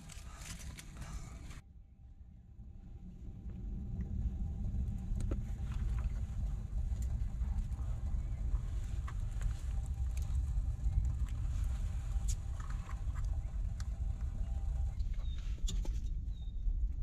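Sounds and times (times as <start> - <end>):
small clicks and rustles: 0.0 - 1.6, 5.1 - 16.2
low fluctuating rumble: 0.0 - 17.0.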